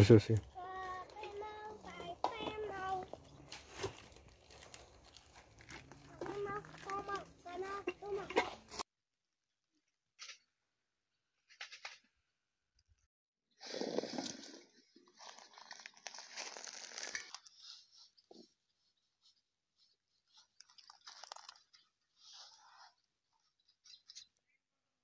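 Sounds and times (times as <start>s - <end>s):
olives rustling in plastic crate: 0.8s - 7.9s, 13.7s - 17.9s, 20.3s - 22.6s.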